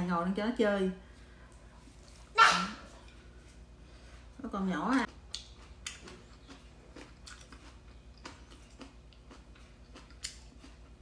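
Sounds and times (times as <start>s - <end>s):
person chewing food: 5.1s - 11.0s.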